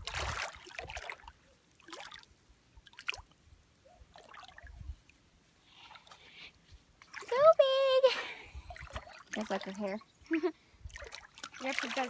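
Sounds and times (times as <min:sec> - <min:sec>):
small splashes in shallow water: 0:00.0 - 0:05.2, 0:07.0 - 0:07.7, 0:08.6 - 0:10.1, 0:10.8 - 0:12.0.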